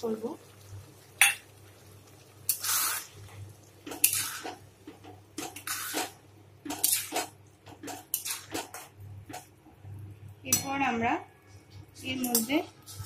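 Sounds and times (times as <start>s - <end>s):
spatula scraping wok: 2.5s - 3.1s, 3.9s - 4.6s, 5.4s - 9.4s.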